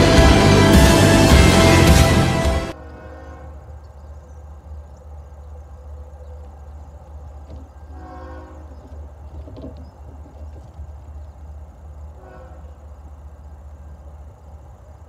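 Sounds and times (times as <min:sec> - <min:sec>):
steady low rumble: 0:00.0 - 0:02.8
distant locomotive air horn: 0:00.0 - 0:03.7, 0:07.9 - 0:08.8, 0:12.2 - 0:12.9.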